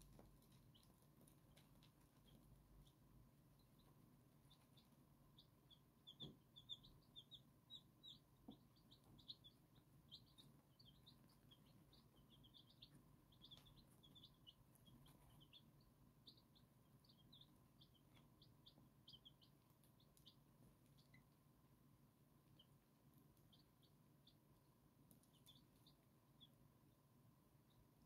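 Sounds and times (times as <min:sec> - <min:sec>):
chicks peeping: 0:00.0 - 0:28.0.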